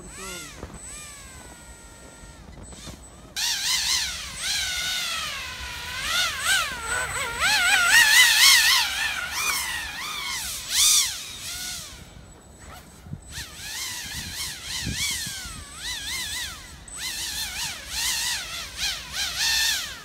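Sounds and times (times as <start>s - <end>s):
rc hovercraft motor and fan whining: 0.0s - 20.0s.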